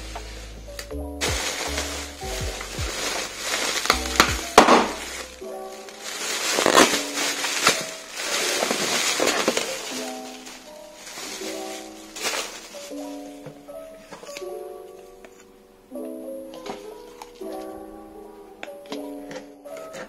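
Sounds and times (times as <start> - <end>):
plastic packing crinkling: 0.0 - 14.6
soft background music: 0.0 - 20.0.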